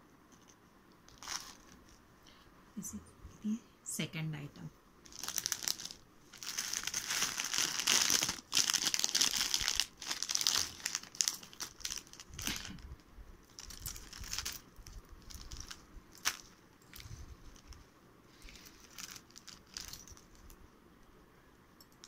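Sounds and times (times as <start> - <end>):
plastic packaging crinkling: 1.1 - 2.0, 5.0 - 17.8, 18.4 - 20.6.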